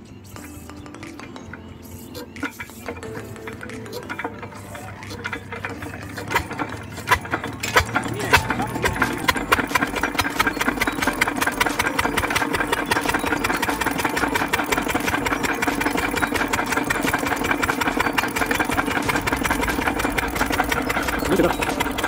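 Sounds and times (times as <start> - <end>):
diesel engine chugging: 2.2 - 22.0.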